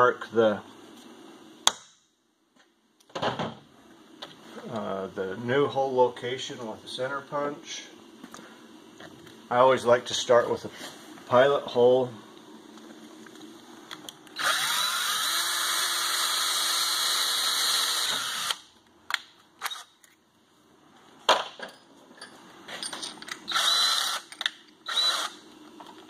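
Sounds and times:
cordless drill boring: 14.4s - 18.6s, 23.5s - 25.4s.

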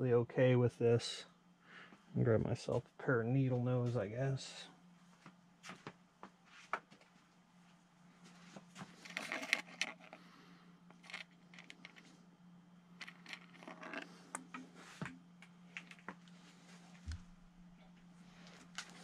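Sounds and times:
steady low hum: 0.0s - 19.0s
small metallic clicks and rattles: 9.0s - 10.2s, 10.9s - 12.1s, 13.0s - 14.5s.

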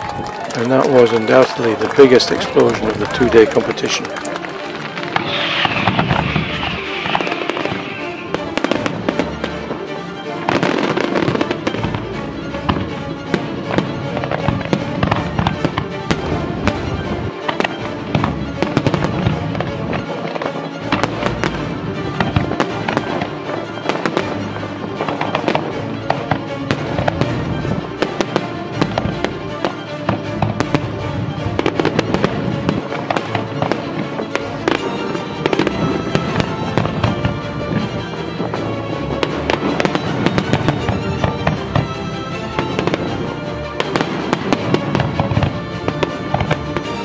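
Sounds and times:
background music: 0.0s - 47.0s
fireworks shell bursts: 4.5s - 9.0s.

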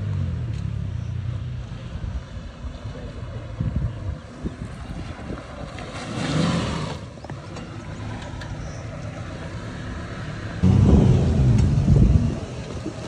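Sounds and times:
car engine revving under load: 10.6s - 12.9s.

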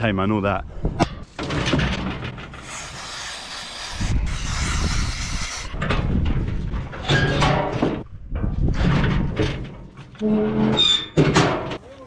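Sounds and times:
aerosol can spraying hiss: 2.6s - 5.7s.

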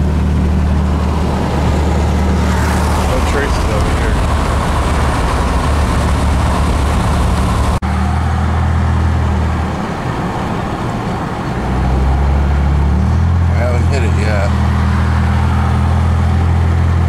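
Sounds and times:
car engine and tyre noise: 0.0s - 17.0s.

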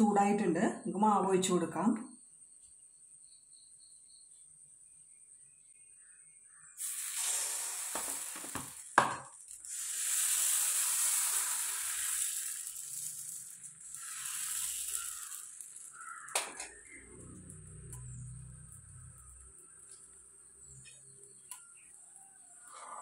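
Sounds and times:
batter sizzling in hot pan: 6.8s - 22.8s.

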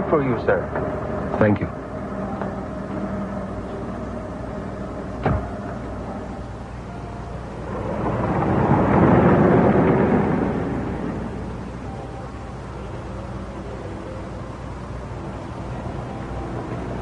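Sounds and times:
car pulling away: 0.0s - 17.0s
car door thudding shut: 5.2s - 5.6s.

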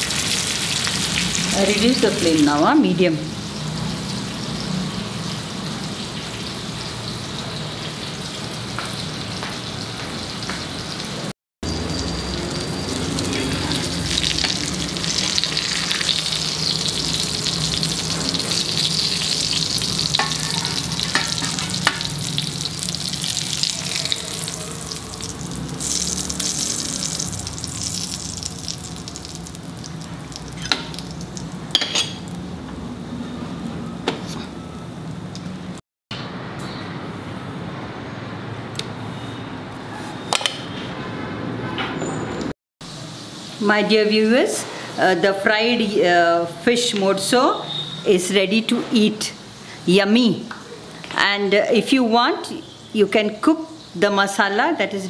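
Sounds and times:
fish sizzling in oil: 0.0s - 32.5s.

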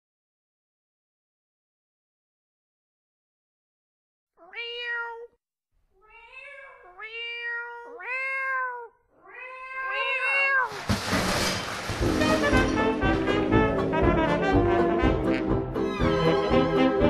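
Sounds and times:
cat meowing: 4.4s - 5.4s, 6.0s - 10.8s
brass band playing: 12.0s - 17.0s.

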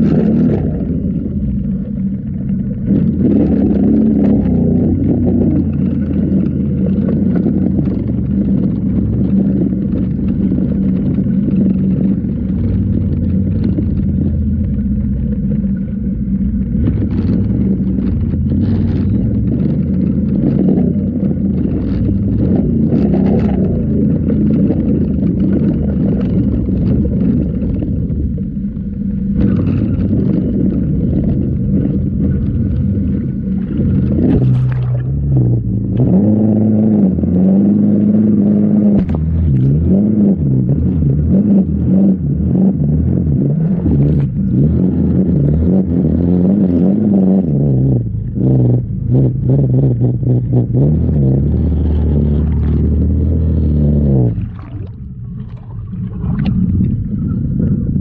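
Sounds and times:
water rushing and splashing: 0.0s - 36.2s, 51.7s - 58.0s
vehicle engine revving: 0.0s - 58.0s.

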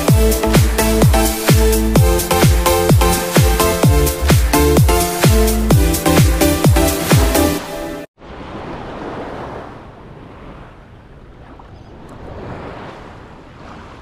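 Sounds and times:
electronic dance music: 0.0s - 8.1s
surf washing in shallow water: 6.8s - 14.0s.

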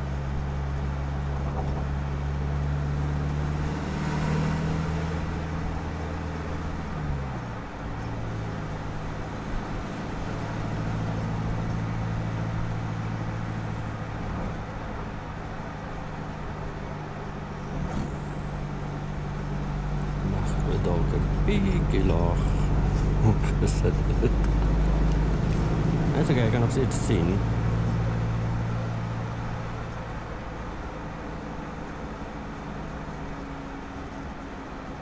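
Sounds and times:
diesel engine and exhaust running: 0.0s - 35.0s
road noise: 0.0s - 35.0s.

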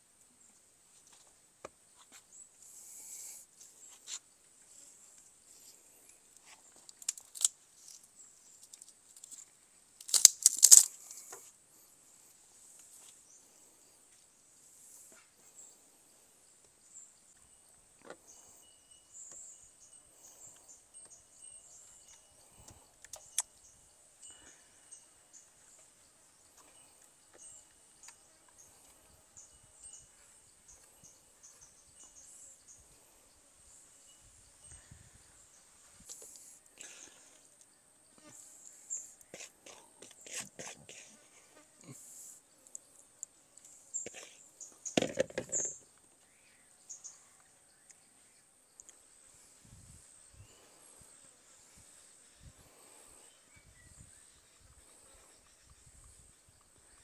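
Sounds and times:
insects droning: 1.9s - 57.0s
bamboo knocking and cracking: 10.0s - 11.4s, 44.9s - 45.8s.

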